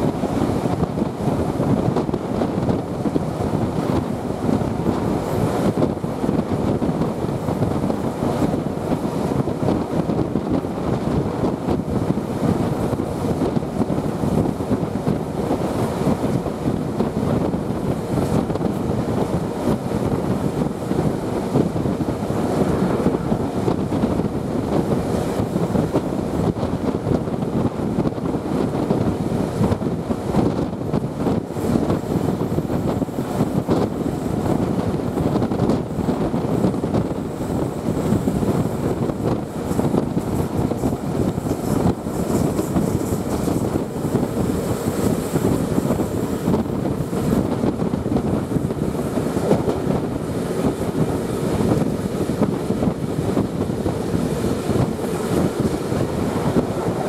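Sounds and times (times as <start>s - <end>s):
passenger train running: 0.0s - 57.0s
wind rushing over microphone: 0.0s - 57.0s.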